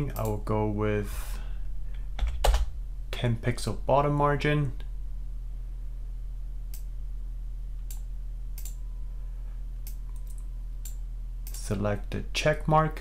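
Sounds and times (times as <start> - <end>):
low electrical hum: 0.0 - 13.0
computer mouse clicks: 7.8 - 8.8, 9.8 - 11.6.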